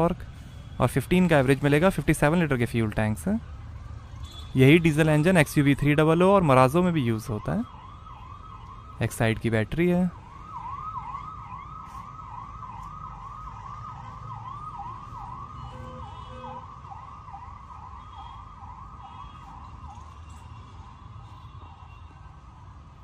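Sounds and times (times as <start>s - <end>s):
electronic siren yelping: 6.8s - 20.3s.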